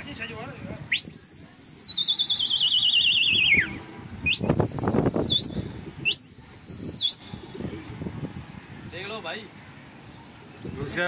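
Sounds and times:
shrill human whistling: 0.9s - 7.3s.

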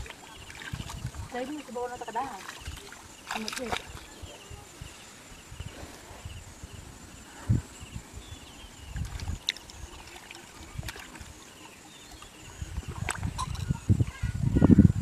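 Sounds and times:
hands squelching in mud and water: 0.0s - 4.4s, 8.9s - 11.4s.

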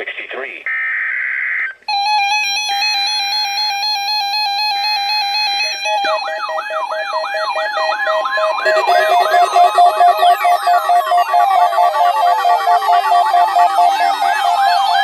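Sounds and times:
pulsing electronic alarm beeps: 0.7s - 15.0s
siren-like sweep: 4.9s - 15.0s
data header bursts: 7.7s - 15.0s.

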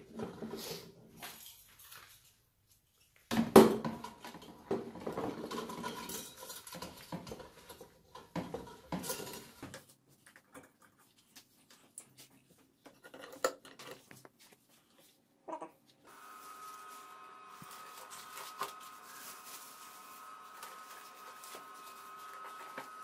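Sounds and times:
metal clattering and rubbing: 4.9s - 9.9s.

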